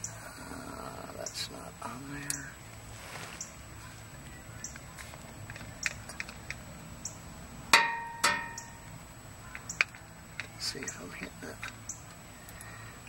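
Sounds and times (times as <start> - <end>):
grease gun clicks: 4.7 - 6.6
sharp metallic clanks: 7.7 - 8.9.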